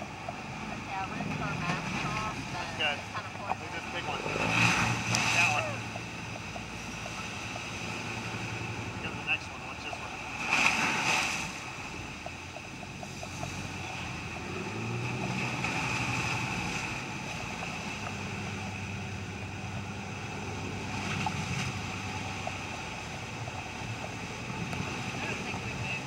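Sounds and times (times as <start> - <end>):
motorboat engine drone: 0.0 - 26.0
wind and water rushing: 0.0 - 26.0.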